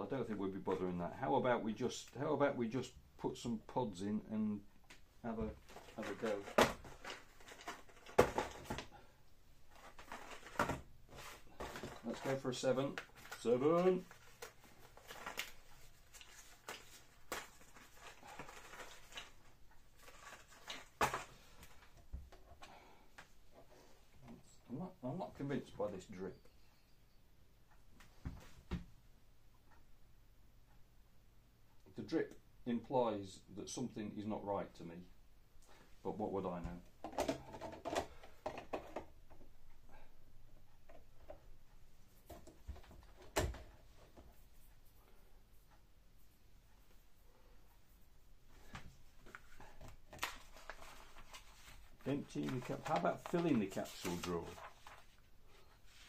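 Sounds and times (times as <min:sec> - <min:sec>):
cardboard boxes rustling: 0:05.5 - 0:08.9, 0:09.7 - 0:21.9.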